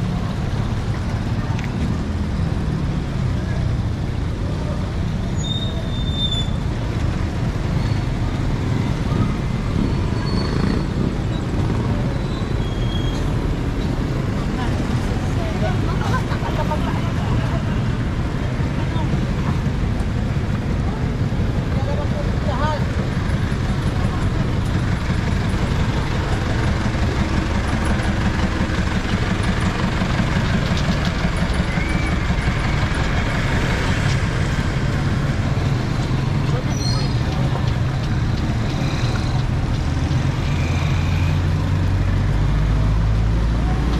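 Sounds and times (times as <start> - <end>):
road noise: 0.0 - 43.9
street traffic rumble: 0.0 - 43.9
vehicle engine running: 13.3 - 43.9.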